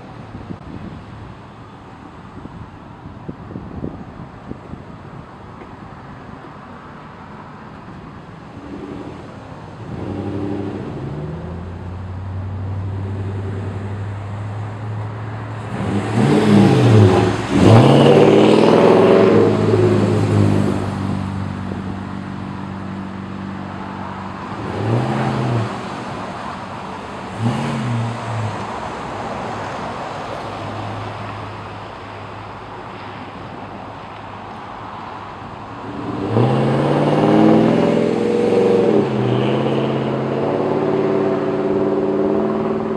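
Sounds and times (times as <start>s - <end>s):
car exhaust growling and revving: 8.5s - 29.0s, 35.8s - 42.9s.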